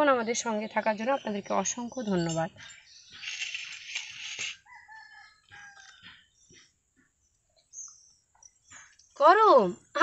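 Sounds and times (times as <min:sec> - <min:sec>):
rustling: 0:03.1 - 0:04.6.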